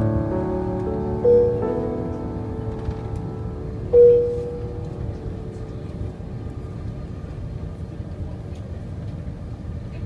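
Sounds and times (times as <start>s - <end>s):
piano note: 0.0s - 6.8s
airliner cabin rumble: 0.0s - 10.0s.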